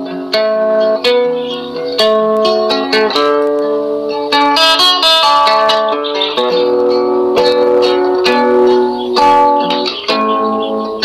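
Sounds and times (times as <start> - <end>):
plucked string music: 0.0 - 11.0.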